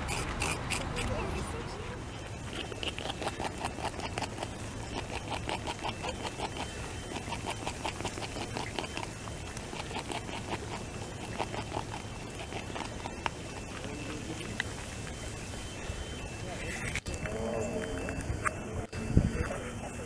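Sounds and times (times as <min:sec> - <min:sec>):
beaver gnawing bark: 0:00.0 - 0:01.4, 0:02.1 - 0:18.6.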